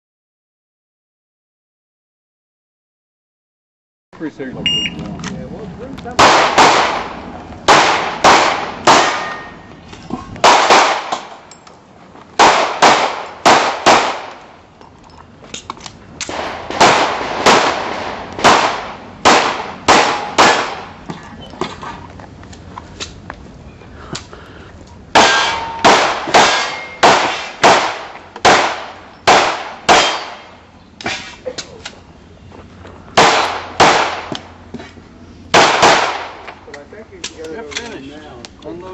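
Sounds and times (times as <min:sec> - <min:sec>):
pistol shots: 0:06.2 - 0:09.5, 0:10.4 - 0:11.4, 0:12.4 - 0:14.5, 0:16.2 - 0:21.0, 0:25.1 - 0:31.3, 0:33.2 - 0:34.5, 0:35.5 - 0:36.5.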